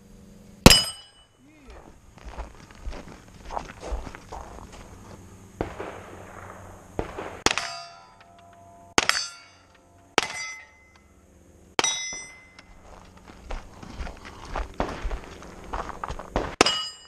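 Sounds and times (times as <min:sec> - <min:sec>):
steel plate ringing: 0:00.6 - 0:01.5, 0:07.6 - 0:11.2, 0:11.8 - 0:12.8, 0:16.6 - 0:17.0
pistol shots: 0:05.6 - 0:08.3, 0:09.0 - 0:09.5, 0:16.4 - 0:16.8.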